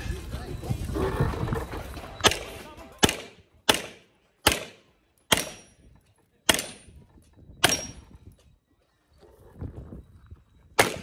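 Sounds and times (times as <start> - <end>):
pistol shots with echo: 2.2 - 5.8, 6.5 - 6.9, 7.6 - 8.0, 10.8 - 11.0.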